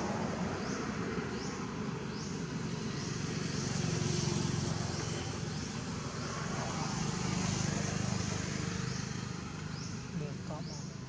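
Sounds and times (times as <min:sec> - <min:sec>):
distant engine rumble: 0:00.0 - 0:11.0.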